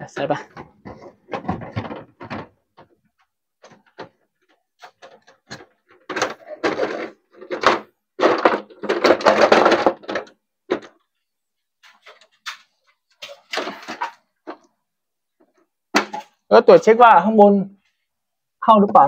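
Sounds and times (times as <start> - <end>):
plastic rubbing: 0.0 - 14.8
plastic clicks and knocks: 0.2 - 11.1.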